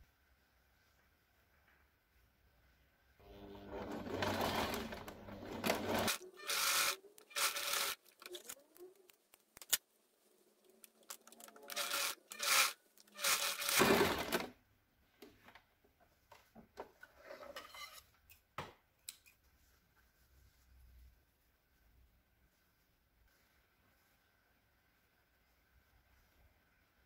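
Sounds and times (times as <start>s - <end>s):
sewing machine stitching: 3.2s - 8.5s, 11.6s - 14.5s
cloth rustling and rubbing: 19.4s - 27.0s.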